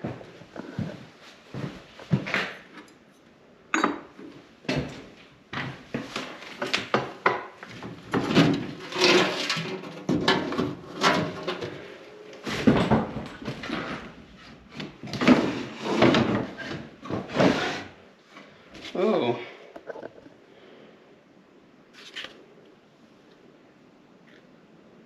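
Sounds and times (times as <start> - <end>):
knocks and scrapes in wooden room: 0.0 - 2.9, 4.1 - 19.1.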